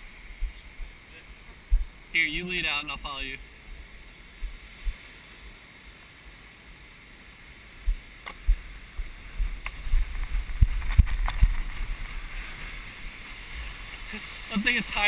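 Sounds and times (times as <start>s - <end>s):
shallow surf washing: 0.0s - 15.0s
wind rumbling on microphone: 0.0s - 15.0s
low thumps and sharp knocks: 7.9s - 11.9s.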